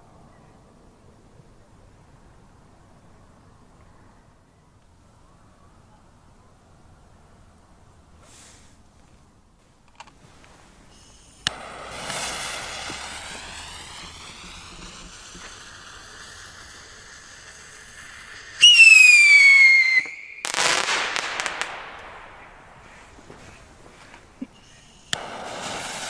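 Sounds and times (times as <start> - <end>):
firework crackling: 10.1 - 26.0
falling rocket whistle: 10.9 - 26.0
firework pop: 11.4 - 18.7.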